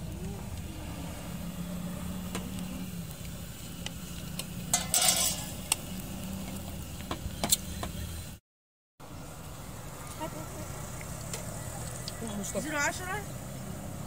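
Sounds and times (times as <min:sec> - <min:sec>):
metal ladle scraping rice in pot: 0:04.7 - 0:05.6.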